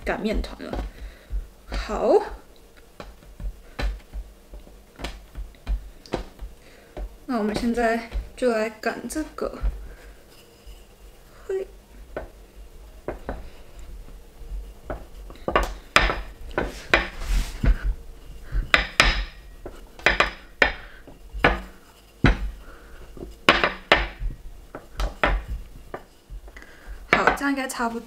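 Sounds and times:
rolling pin rumbling: 0.0s - 10.2s, 11.8s - 27.4s
rolling pin knocking on counter: 0.3s - 2.0s, 3.0s - 8.4s, 14.9s - 17.2s, 18.6s - 20.8s, 21.4s - 22.6s, 23.5s - 26.1s, 27.1s - 27.5s.

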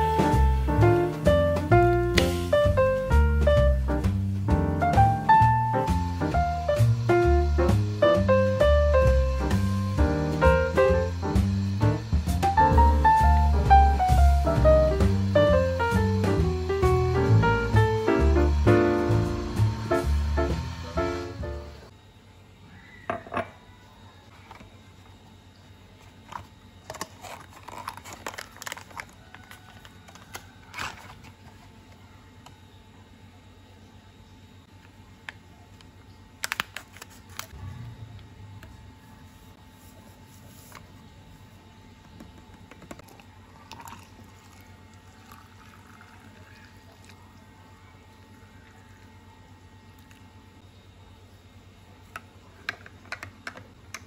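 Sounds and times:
cardboard and packet crinkling: 26.1s - 31.7s, 36.4s - 37.6s
water pouring into glass: 43.0s - 47.2s.

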